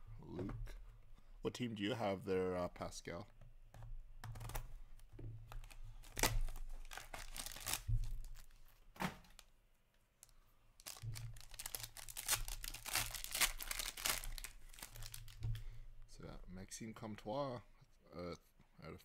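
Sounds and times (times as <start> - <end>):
packaging tearing and crinkling: 5.6 - 8.6, 10.8 - 15.4.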